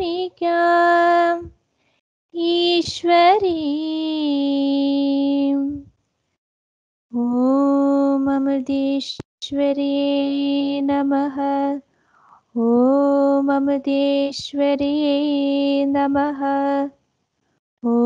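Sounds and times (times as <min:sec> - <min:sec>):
woman singing: 0:00.0 - 0:01.5, 0:02.4 - 0:05.9, 0:07.1 - 0:11.9, 0:12.6 - 0:17.0.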